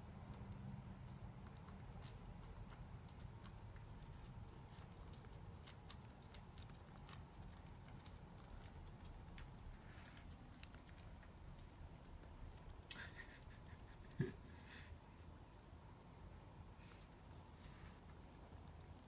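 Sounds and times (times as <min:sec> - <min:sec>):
hedgehog licking clicks and smacks: 0:00.1 - 0:14.2.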